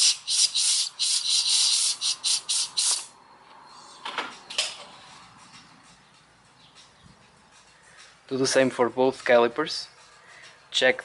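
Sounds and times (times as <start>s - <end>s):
air blow gun hissing blasts: 0.0s - 3.1s.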